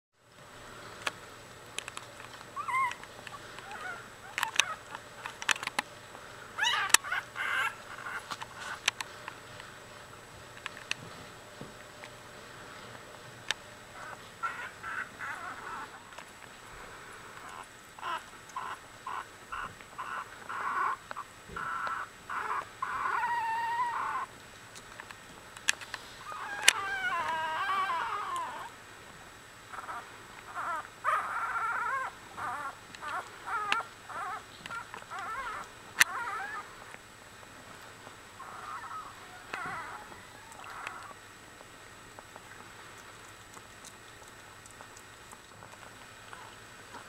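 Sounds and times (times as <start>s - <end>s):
puppies squeaking and whimpering: 2.6s - 5.4s, 6.6s - 8.8s, 13.9s - 16.1s, 17.4s - 24.3s, 26.2s - 28.7s, 29.7s - 36.9s, 38.4s - 41.2s.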